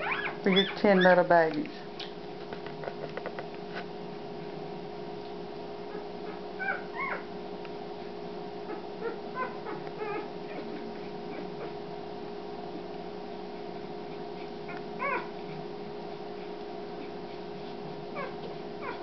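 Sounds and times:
puppies squeaking and whimpering: 0:00.0 - 0:01.3, 0:05.9 - 0:07.3, 0:08.7 - 0:11.8, 0:15.0 - 0:15.4, 0:18.2 - 0:19.0
steady low hum: 0:00.0 - 0:19.0.

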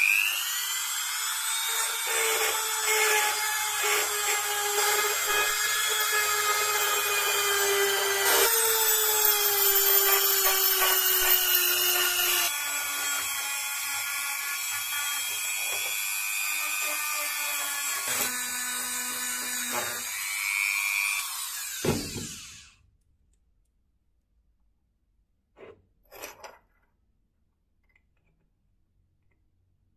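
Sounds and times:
rotary tool grinding metal: 0:00.0 - 0:22.7.

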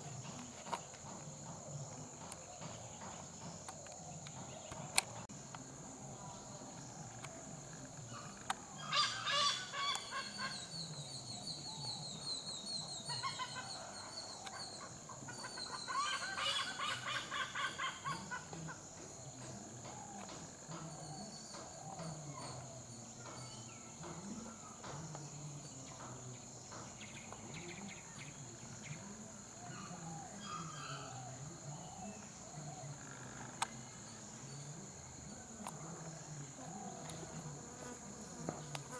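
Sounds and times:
high insect drone: 0:00.0 - 0:38.9
hornbill calling: 0:08.0 - 0:24.9, 0:29.5 - 0:34.7.

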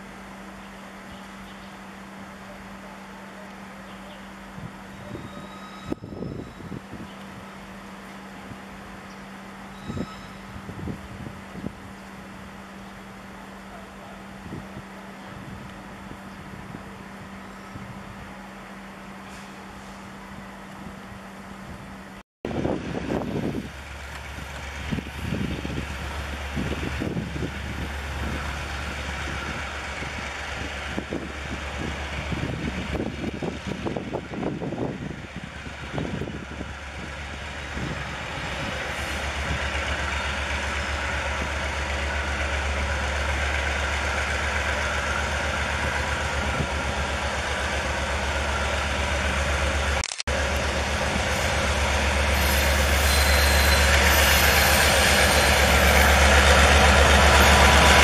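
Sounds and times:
locomotive engine running: 0:20.5 - 0:58.0.

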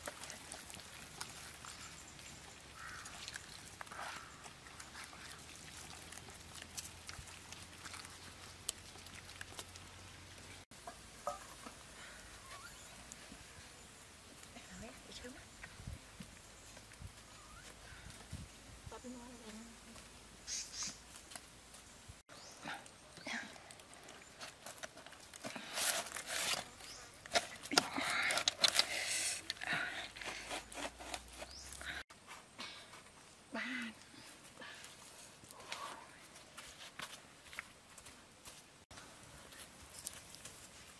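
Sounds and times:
wet squelching of meat: 0:00.0 - 0:10.0.

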